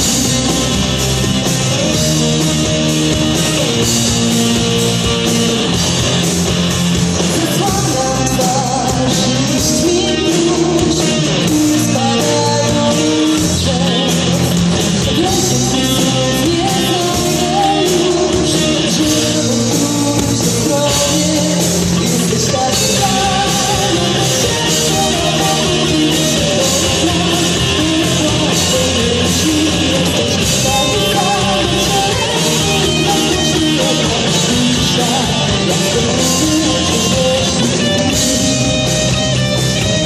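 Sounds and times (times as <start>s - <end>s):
drums: 0.0s - 40.0s
electric bass: 0.0s - 40.0s
electric guitars: 0.0s - 40.0s
woman singing: 7.3s - 37.8s.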